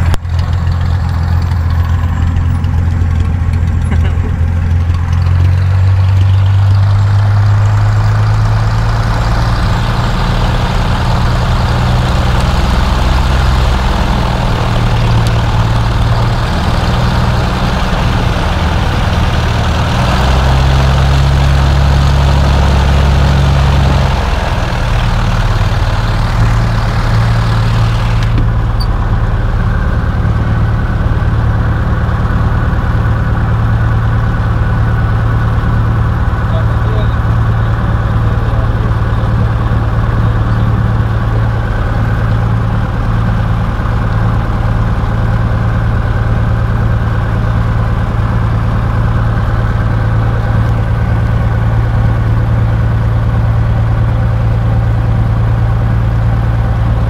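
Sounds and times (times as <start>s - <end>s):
propeller aircraft engine running: 0.0s - 57.0s.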